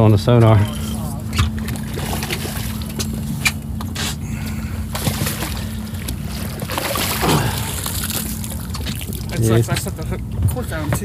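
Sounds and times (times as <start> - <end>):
steady low hum: 0.0 - 11.0
fish splashing in water: 4.9 - 9.4.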